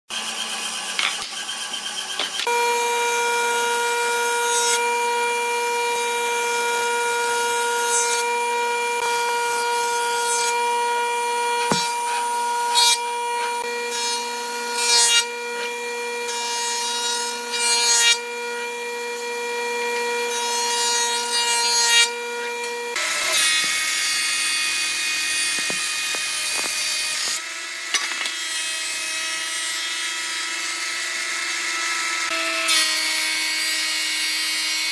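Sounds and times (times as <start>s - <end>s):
thickness planer cutting board: 0.1s - 34.9s
jointer humming: 8.3s - 15.0s
jointer rasping on boards: 9.8s - 15.7s, 23.0s - 27.4s.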